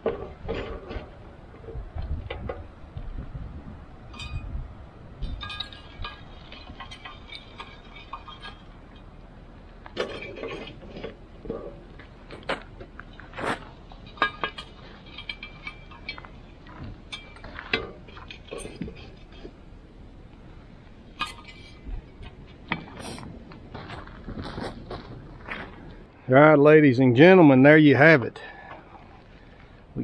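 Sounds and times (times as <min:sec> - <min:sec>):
coals clinking and scraping: 0:00.0 - 0:03.1, 0:04.0 - 0:26.2, 0:27.7 - 0:30.0
shovel scooping hot coals: 0:05.3 - 0:23.7.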